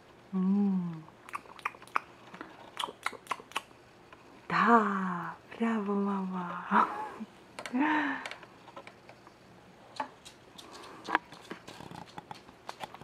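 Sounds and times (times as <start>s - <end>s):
faint clicks and taps: 9.9s - 13.0s.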